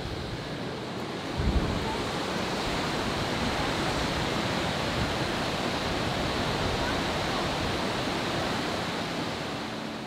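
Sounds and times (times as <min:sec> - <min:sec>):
river rushing down cascades: 0:00.0 - 0:10.0.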